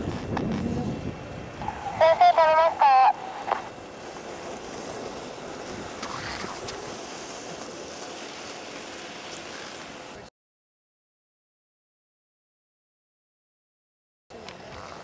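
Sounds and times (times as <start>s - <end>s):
wind on microphone: 0.0s - 7.8s.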